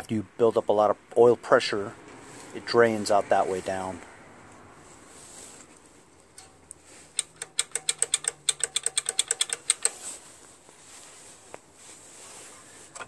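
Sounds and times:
sharp metallic clicks: 6.3 - 10.1.

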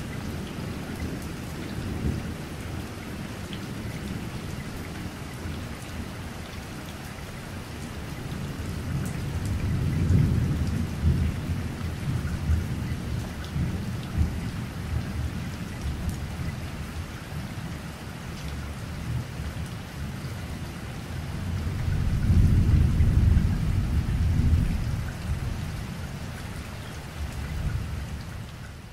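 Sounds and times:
steady rain: 0.0 - 28.9
rolling thunder: 21.6 - 25.6.

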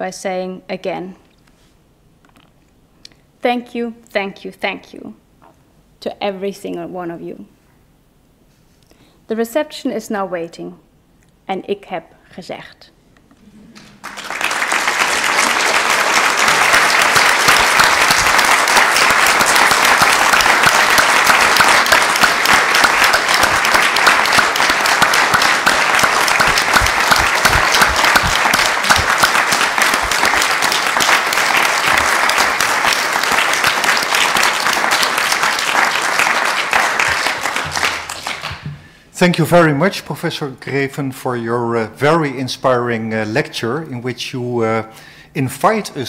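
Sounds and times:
audience applauding: 13.7 - 38.9.

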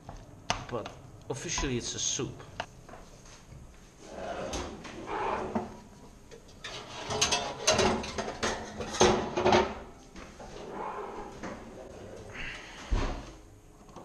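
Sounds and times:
metal pots and pans clanking: 6.6 - 9.8.

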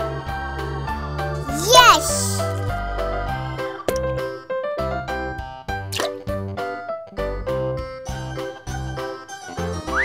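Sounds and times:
bouncy children's music: 1.6 - 2.5.

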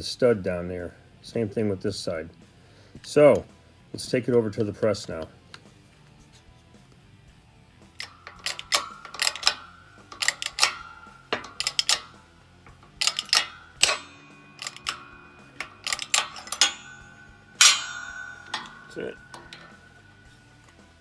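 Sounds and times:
metallic clicks and clinks: 7.9 - 21.0.

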